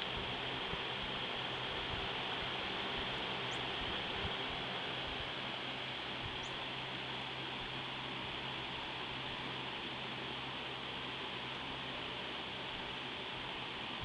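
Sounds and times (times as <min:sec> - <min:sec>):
low hum: 0:00.0 - 0:14.0
steady hiss: 0:00.0 - 0:14.0
faint high chirps: 0:06.3 - 0:06.6.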